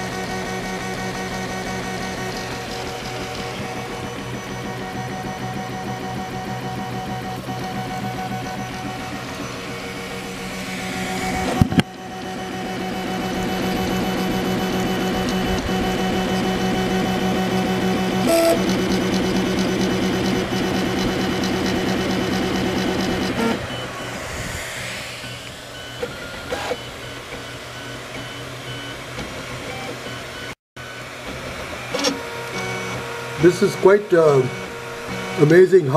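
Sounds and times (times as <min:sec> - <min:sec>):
stepper motors buzzing whine: 0:00.0 - 0:35.9
rising and falling sweep: 0:07.6 - 0:15.2, 0:22.1 - 0:27.8
printer clicks: 0:31.3 - 0:35.7.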